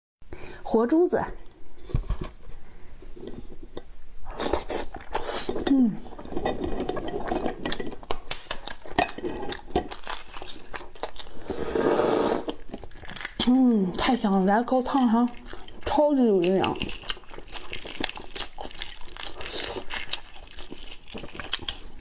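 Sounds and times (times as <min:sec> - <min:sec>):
egg shell crackling as peeled: 0:06.1 - 0:22.0.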